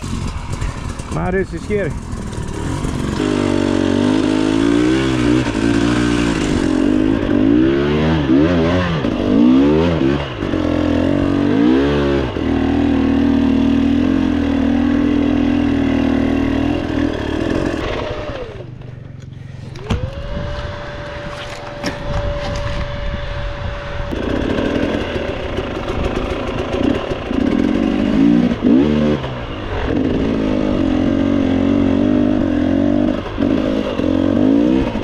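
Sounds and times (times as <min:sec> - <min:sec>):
dirt bike engine revving: 0:00.0 - 0:35.0.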